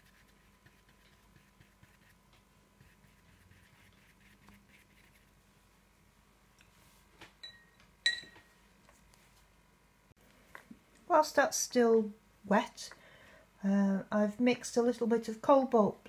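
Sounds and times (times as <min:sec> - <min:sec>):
brush dabbing paint on paper: 0:00.0 - 0:05.4
sharp ringing clink: 0:07.4 - 0:08.4.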